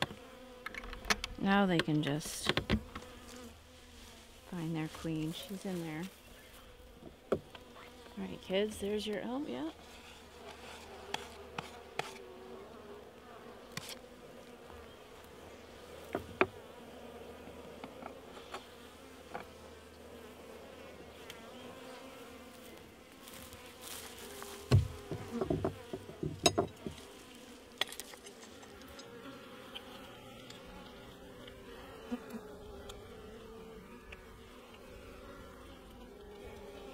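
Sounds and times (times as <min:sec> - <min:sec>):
clicks and knocks on hive: 0:00.0 - 0:03.2, 0:10.4 - 0:12.2, 0:16.1 - 0:16.6, 0:24.4 - 0:27.1, 0:27.7 - 0:30.6
honey bees buzzing: 0:00.0 - 0:36.9.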